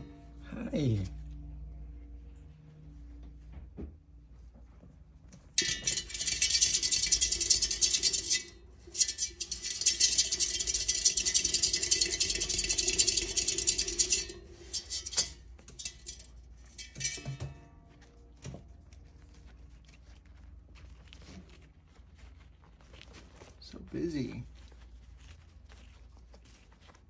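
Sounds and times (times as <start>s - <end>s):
plastic exercise wheel rattling: 5.6s - 17.4s.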